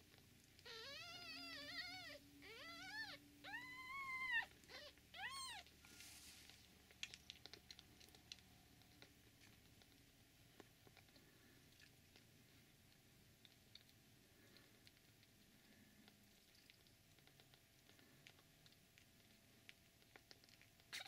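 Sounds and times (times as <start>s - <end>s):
kittens suckling clicks: 0.0s - 2.7s, 3.8s - 21.0s
kittens mewing: 0.6s - 5.8s.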